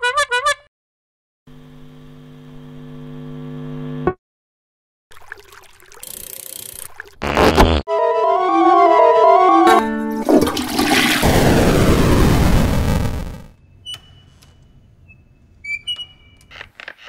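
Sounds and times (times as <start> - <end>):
loud rushing burst: 10.5 - 13.5.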